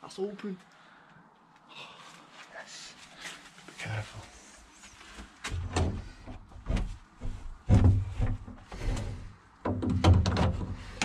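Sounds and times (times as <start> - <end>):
wooden door thuds: 5.5 - 8.6, 9.6 - 11.0.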